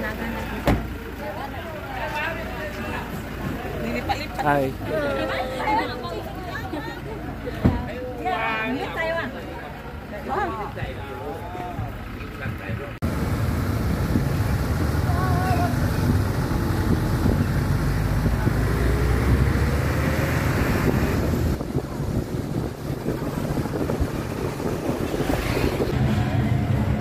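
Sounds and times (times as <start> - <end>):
outdoor rumble: 0.0 - 27.0
wind buffeting microphone: 13.0 - 26.3.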